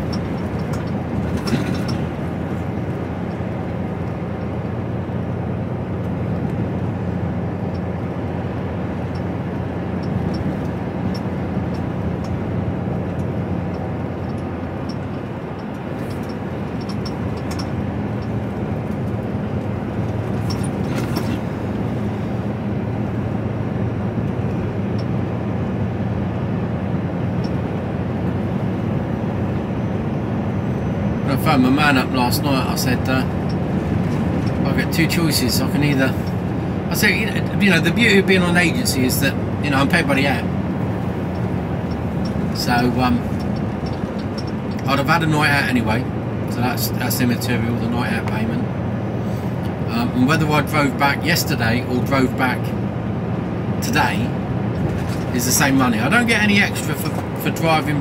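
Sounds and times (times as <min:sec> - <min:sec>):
lorry diesel engine droning: 0:00.0 - 0:58.0
road noise inside cab: 0:00.0 - 0:58.0.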